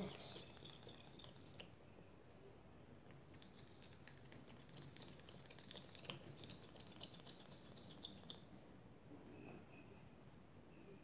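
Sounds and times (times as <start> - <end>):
plastic fork stirring in plastic cup: 0.0 - 1.8, 2.7 - 8.5.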